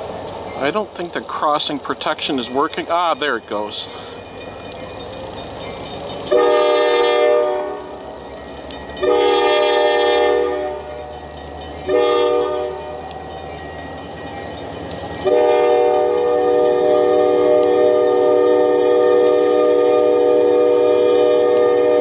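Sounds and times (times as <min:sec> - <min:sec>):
diesel engine rumbling: 0:00.0 - 0:21.8
train air horn blasts: 0:06.3 - 0:08.0, 0:09.0 - 0:11.0, 0:11.9 - 0:13.0, 0:15.2 - 0:22.0.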